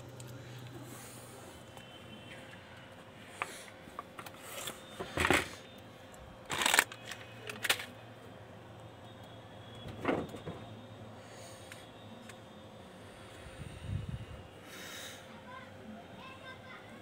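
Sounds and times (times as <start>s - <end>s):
faint steady hum: 0.0s - 17.0s
rustling and scraping handling noise: 2.5s - 5.6s.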